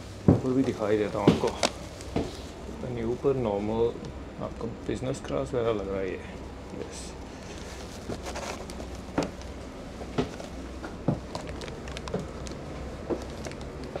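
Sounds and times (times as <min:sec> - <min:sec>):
footsteps on train floor: 0:00.0 - 0:03.6, 0:07.5 - 0:14.0
steady low hum: 0:00.0 - 0:14.0.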